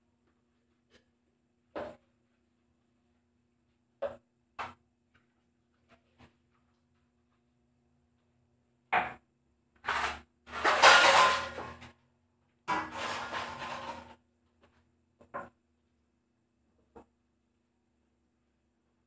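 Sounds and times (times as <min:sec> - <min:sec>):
dishes rinsing and scrubbing: 0:09.8 - 0:11.8, 0:12.7 - 0:14.2.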